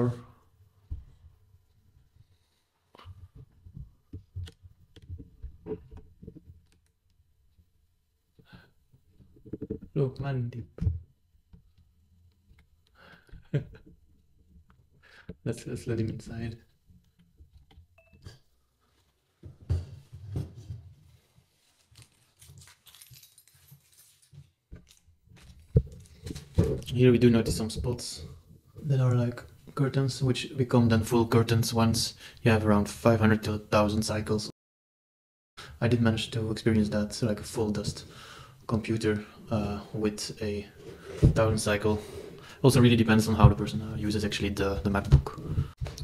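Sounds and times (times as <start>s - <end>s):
handling rustling: 19.8s - 28.0s.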